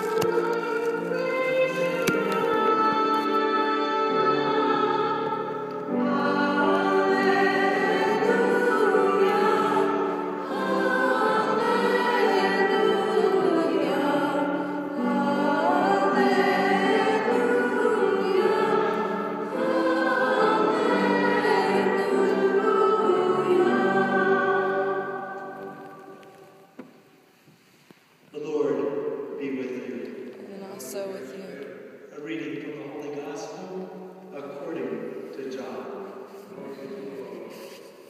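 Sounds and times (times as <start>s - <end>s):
choir singing a hymn: 0.0s - 26.9s.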